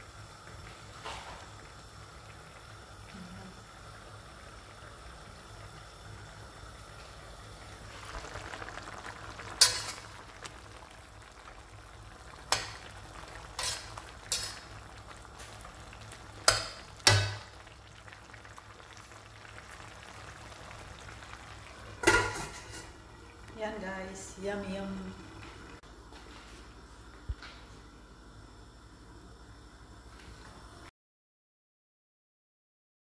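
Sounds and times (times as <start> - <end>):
vegetables sizzling in a pan: 0.0 - 25.8.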